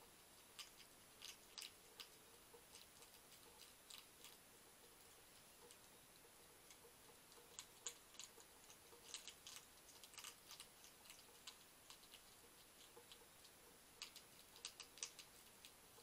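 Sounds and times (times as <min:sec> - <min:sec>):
hedgehog crunching dry food: 0:00.0 - 0:16.0.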